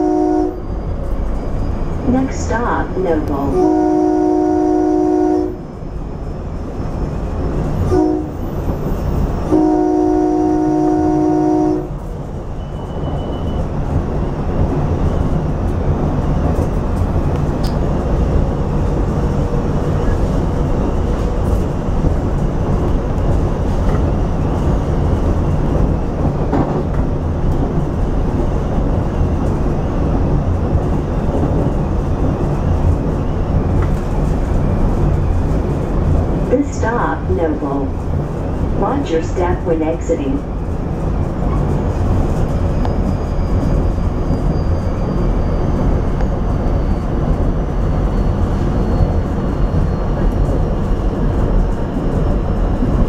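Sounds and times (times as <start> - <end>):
train air horn blasts: 0.0 - 0.6, 3.4 - 5.6, 7.9 - 8.4, 9.4 - 12.0
railcar rolling rumble: 0.0 - 53.0.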